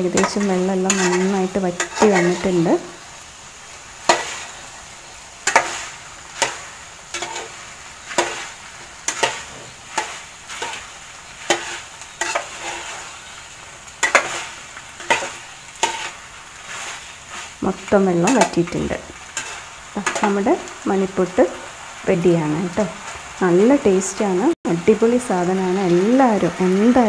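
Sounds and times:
water sizzling: 0.0 - 27.0
metal spoon scraping metal pot: 0.1 - 2.5, 5.5 - 7.5, 11.5 - 13.1, 14.0 - 16.2.

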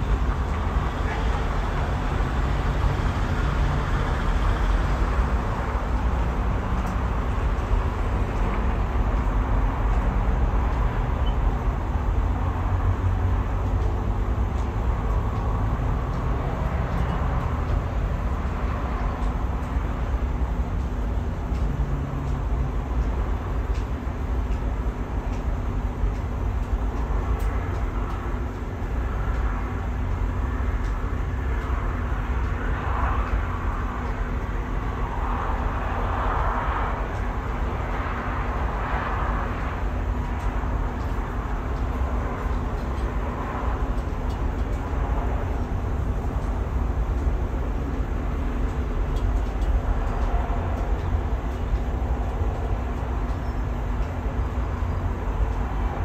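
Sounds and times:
distant road traffic: 0.0 - 56.0
wind rumbling on microphone: 0.0 - 56.0.

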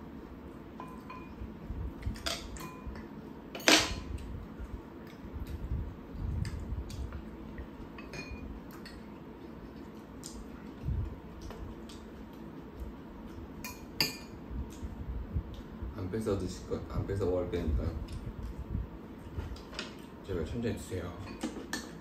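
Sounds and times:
utensils clinking against bowls: 2.2 - 3.0, 8.0 - 9.0, 13.6 - 14.4.

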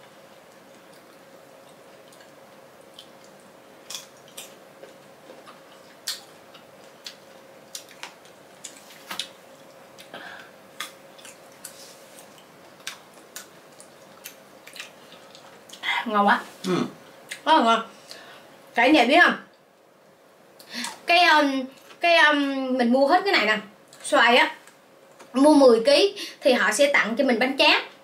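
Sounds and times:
faint steady hum: 0.0 - 28.0
mango being chewed: 10.8 - 15.8.

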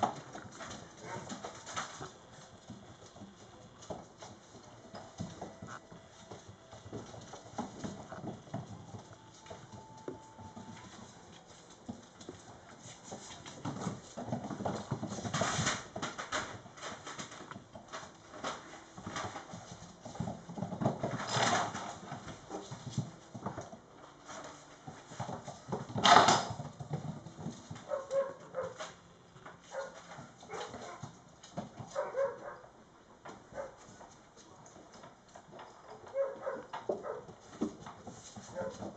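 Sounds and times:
paw clicks on hardwood floor: 0.0 - 32.6, 33.2 - 38.9
puppies scuffling: 0.0 - 38.9.

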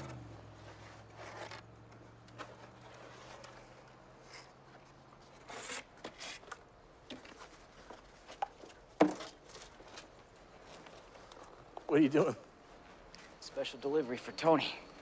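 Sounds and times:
handling rustles and scrapes: 0.0 - 13.5.

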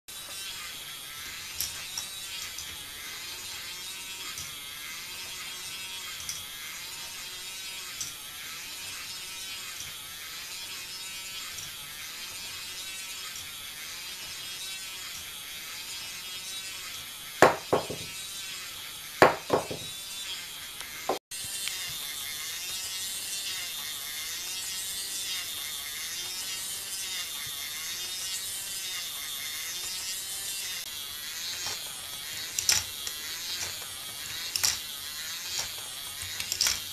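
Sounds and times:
motor and plastic gears whirring: 0.1 - 36.9
sharp plastic clacks: 34.5 - 34.8, 35.5 - 36.9.

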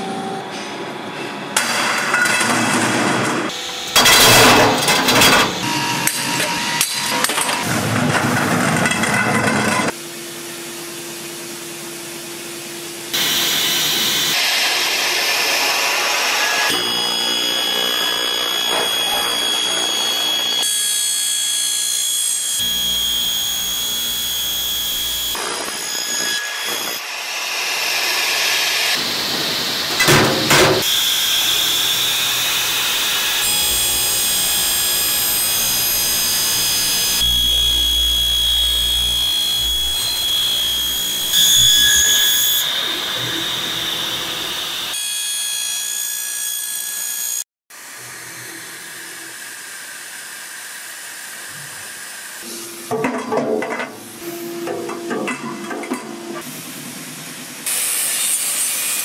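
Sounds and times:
saw cutter cutting steel tube: 13.1 - 53.0, 57.6 - 59.0.

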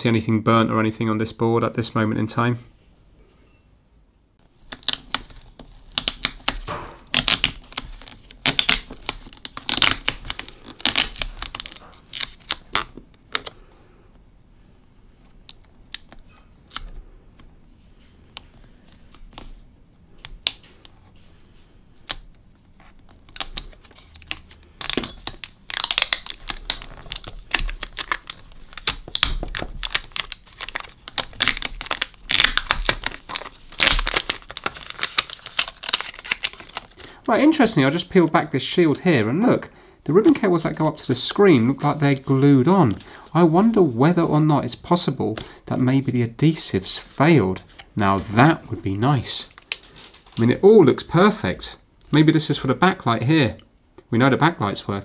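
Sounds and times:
tape crackling and tearing: 4.5 - 13.6, 22.1 - 38.4.

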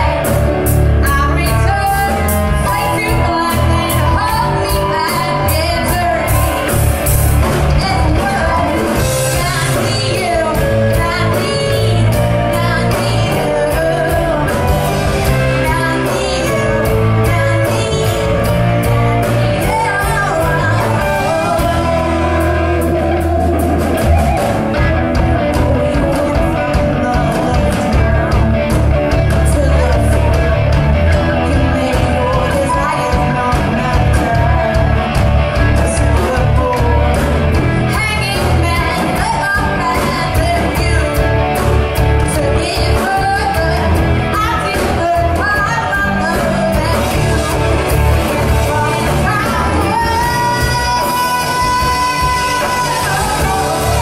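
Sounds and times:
bass guitar: 0.0 - 54.0
drums: 0.0 - 54.0
electric guitars: 0.0 - 54.0
woman singing into a microphone: 0.0 - 54.0.

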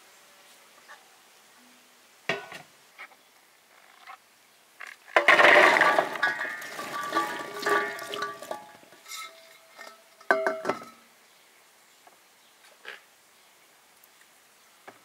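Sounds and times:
glass clinks: 6.2 - 11.0.

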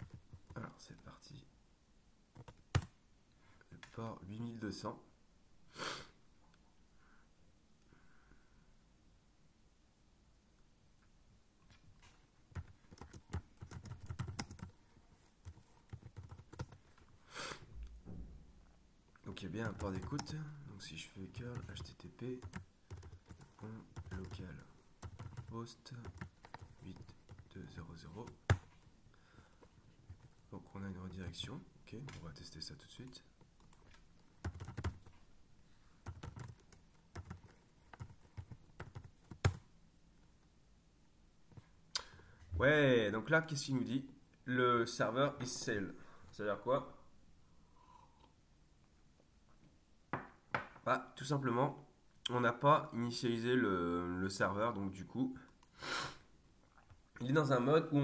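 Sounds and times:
keyboard typing: 2.4 - 2.9, 12.5 - 14.7, 15.4 - 16.8, 19.6 - 20.4, 21.4 - 27.5, 33.6 - 35.1, 36.0 - 39.6.

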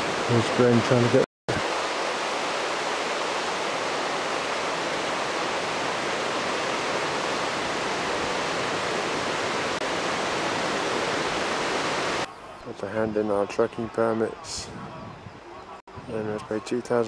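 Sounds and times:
river rushing over rocks: 0.0 - 12.3.

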